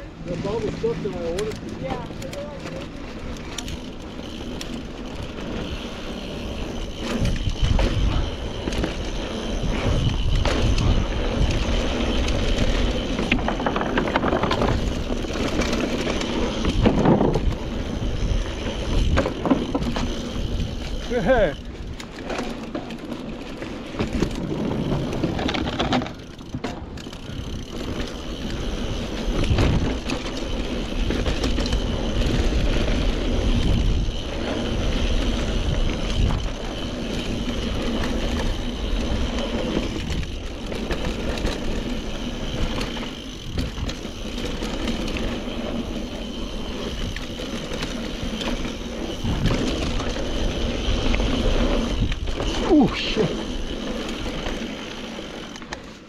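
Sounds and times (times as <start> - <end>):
bike rattling over bumps: 0.0 - 56.0
bike tyres crunching on dirt: 0.0 - 56.0
wind on microphone: 49.1 - 50.1.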